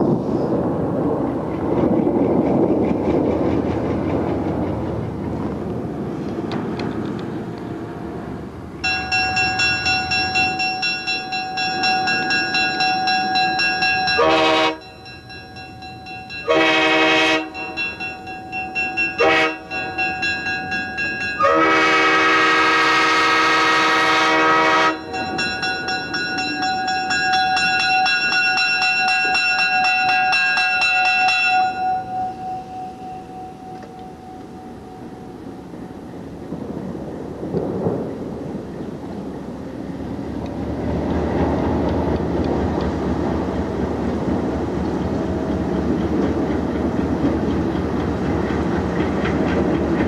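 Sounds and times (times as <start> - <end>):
bell ringing: 8.8 - 21.7, 24.9 - 36.0
locomotive horn blasts: 14.1 - 14.9, 16.4 - 17.8, 19.2 - 19.9, 21.4 - 25.5.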